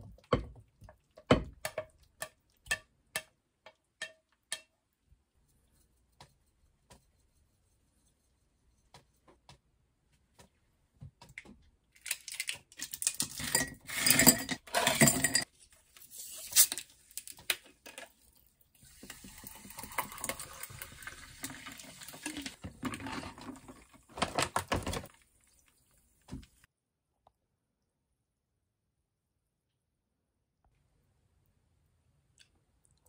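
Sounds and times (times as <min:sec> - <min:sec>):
ice cubes clattering into glass: 0:12.0 - 0:15.4
ice clinking: 0:12.3 - 0:15.4
sparkling water pouring fizzing: 0:18.2 - 0:22.6.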